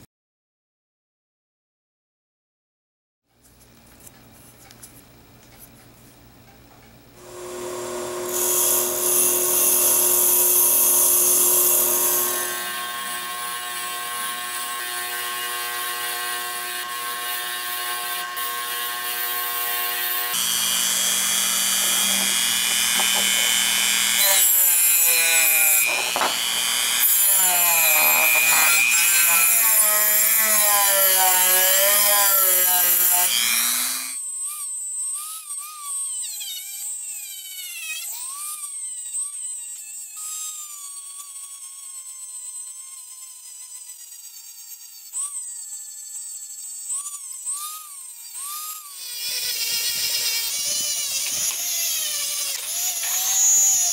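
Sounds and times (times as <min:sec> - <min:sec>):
bench grinder wire wheel whining: 0:07.2 - 0:30.3, 0:49.2 - 0:53.9
rotary tool whine: 0:07.2 - 0:53.9.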